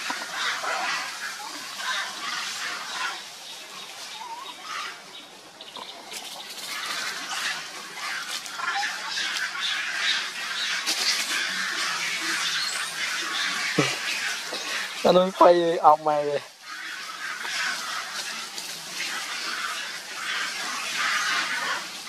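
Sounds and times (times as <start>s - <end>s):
dry leaves rustling and crackling: 0.0s - 22.0s.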